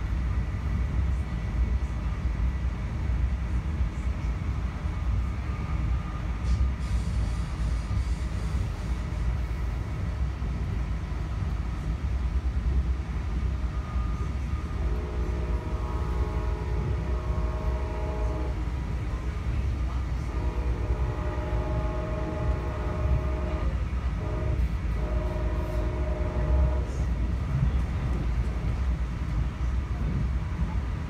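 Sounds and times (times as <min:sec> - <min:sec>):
train running rumble: 0:00.0 - 0:31.0
train horn blasts: 0:13.8 - 0:27.6.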